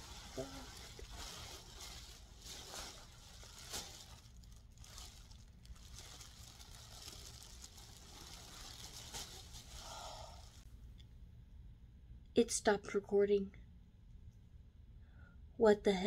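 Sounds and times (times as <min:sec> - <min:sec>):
plastic wrap crinkling: 0:00.0 - 0:10.7.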